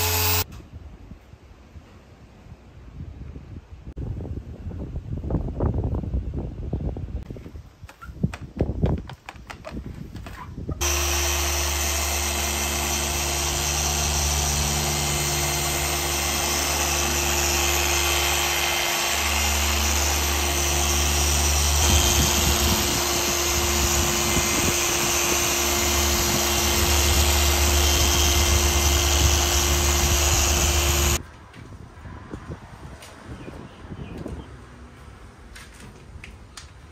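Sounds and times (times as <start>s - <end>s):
polisher motor whirring: 0.0s - 0.4s, 10.8s - 31.2s.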